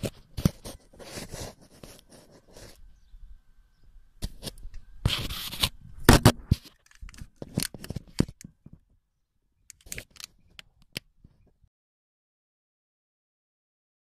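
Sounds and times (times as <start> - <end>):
rustling handling noise: 0.0 - 2.8, 4.2 - 8.9, 9.7 - 11.6
sharp clicks: 9.7 - 11.1.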